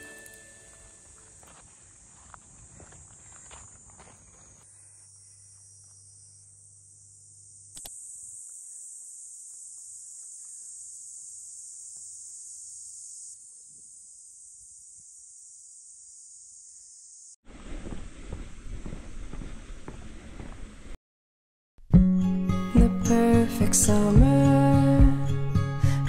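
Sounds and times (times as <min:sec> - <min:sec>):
cicadas shrilling: 0:00.0 - 0:17.4.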